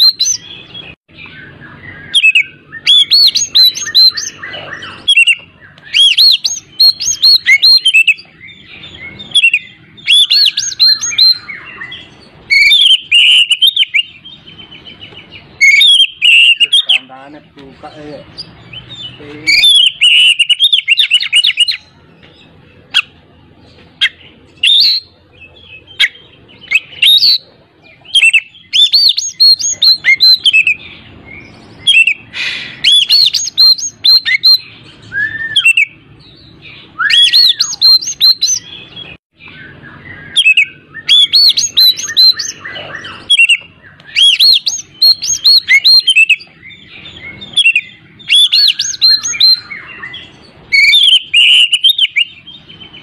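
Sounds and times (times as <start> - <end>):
bird singing whistled notes: 0.0 - 23.2, 23.9 - 53.0.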